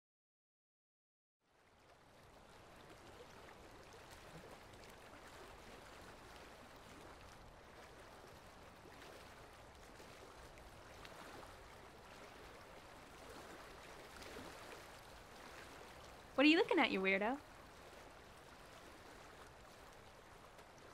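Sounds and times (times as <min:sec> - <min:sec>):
faint outdoor ambience hiss: 0:05.4 - 0:20.9.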